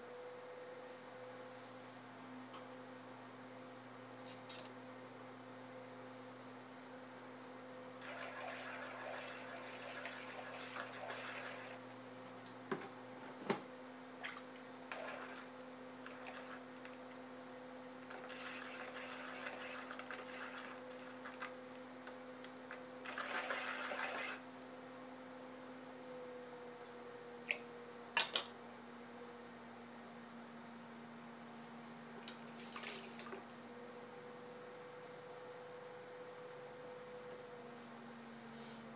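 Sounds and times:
pottery wheel motor hum: 14.4s - 28.1s, 28.8s - 38.9s.

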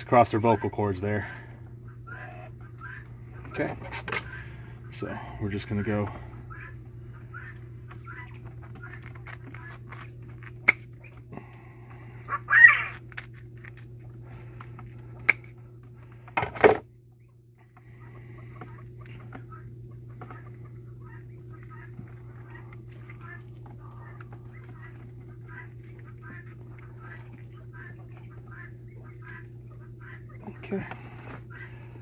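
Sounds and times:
steady low hum: 0.0s - 32.0s
bone crunch: 12.5s - 15.6s.

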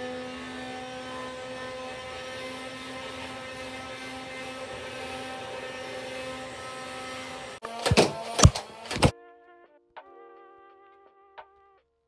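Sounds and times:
toy blaster flywheels whirring: 0.0s - 9.1s.

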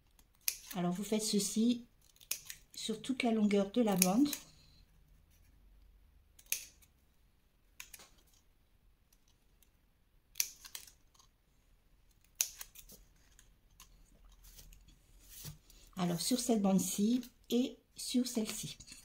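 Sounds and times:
scissors snipping paper: 0.1s - 0.8s, 12.2s - 13.9s.

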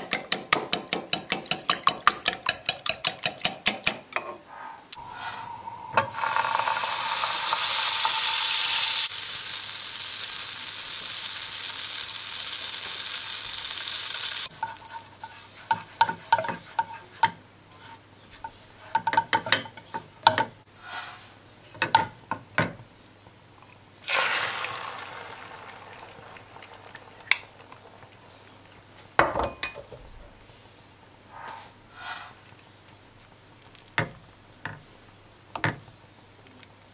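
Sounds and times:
eggs sizzling in butter: 5.0s - 17.0s, 24.0s - 28.8s
butter sizzling in frying pan: 6.1s - 15.4s, 24.0s - 28.3s
spatula scraping and tapping: 14.5s - 20.5s.

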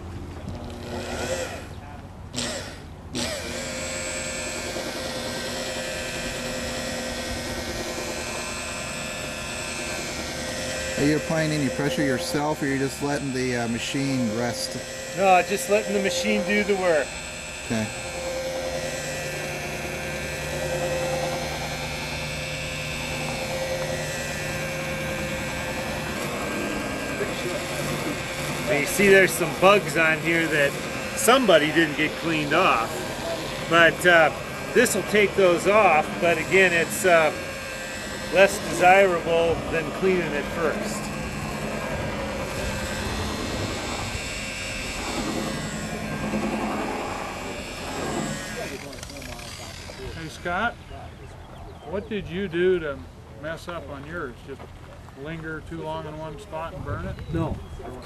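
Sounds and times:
electric polisher humming: 0.0s - 50.7s
electric buffer whirring: 0.0s - 52.8s.

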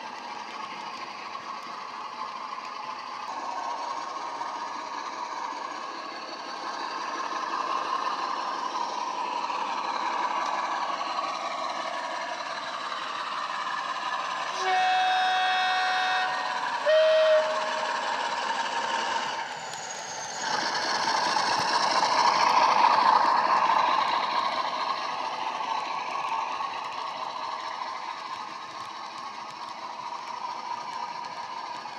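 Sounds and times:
model diesel engine sound: 0.3s - 31.9s
two-tone horn: 14.6s - 18.0s.

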